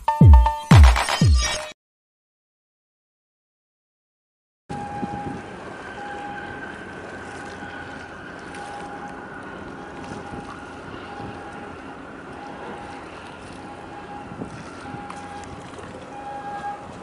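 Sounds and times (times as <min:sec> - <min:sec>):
choppy water: 0:04.7 - 0:17.0
distant ship engine drone: 0:04.7 - 0:17.0
wind on microphone: 0:04.7 - 0:17.0.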